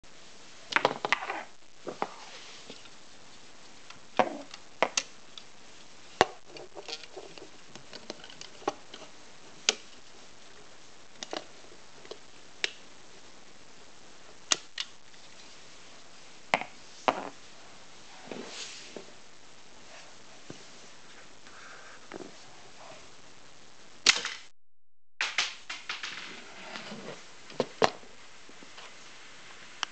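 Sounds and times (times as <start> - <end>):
soft rustle: 1.8 - 4.0, 15.0 - 23.2, 26.3 - 29.8.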